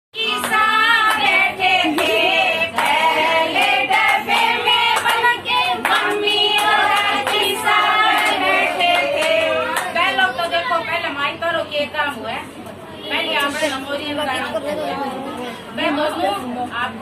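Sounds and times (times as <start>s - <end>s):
women singing folk song: 0.2s - 9.8s
hand claps: 0.4s - 7.5s.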